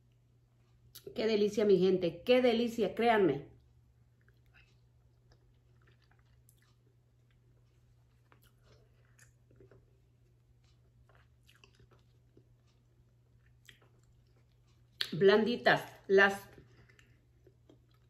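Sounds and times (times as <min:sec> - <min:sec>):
low steady hum: 0:00.0 - 0:18.0
person chewing: 0:03.6 - 0:15.2, 0:16.5 - 0:18.0.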